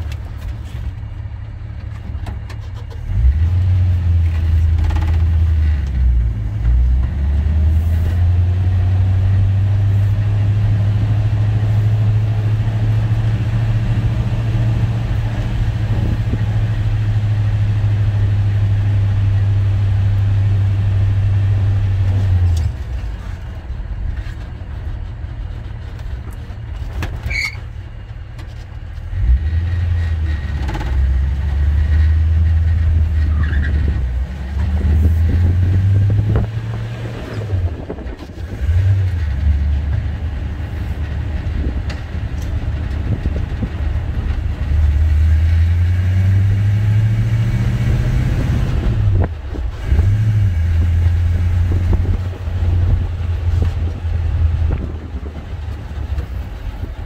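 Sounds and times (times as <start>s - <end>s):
truck engine drone from inside cab: 0.0s - 57.0s
short high squeak: 27.2s - 27.7s.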